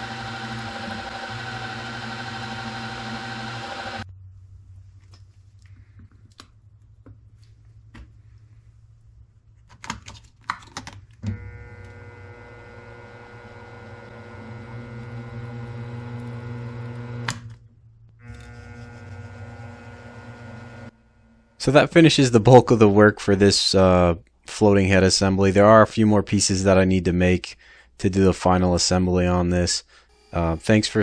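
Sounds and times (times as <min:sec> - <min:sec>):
milling machine motor whine: 0:00.0 - 0:04.0, 0:11.2 - 0:17.5, 0:18.2 - 0:21.7.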